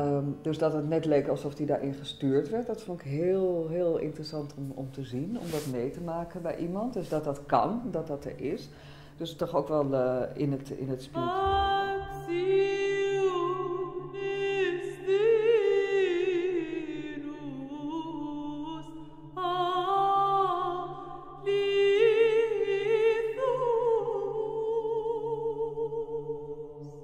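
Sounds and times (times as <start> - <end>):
person singing with vibrato: 11.1 - 27.0.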